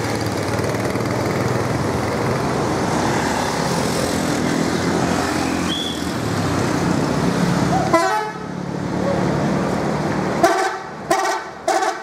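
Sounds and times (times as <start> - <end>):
bus diesel engine running: 0.0 - 12.0.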